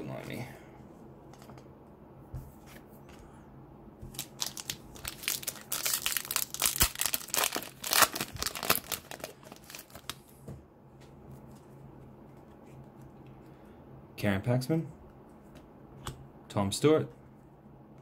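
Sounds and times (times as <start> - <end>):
foil wrapper tearing and crinkling: 4.1 - 10.2.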